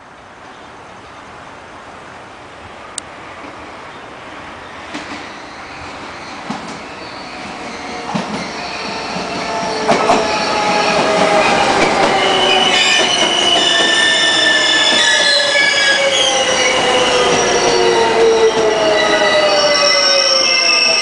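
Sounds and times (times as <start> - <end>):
train whine falling in pitch: 6.4 - 21.0.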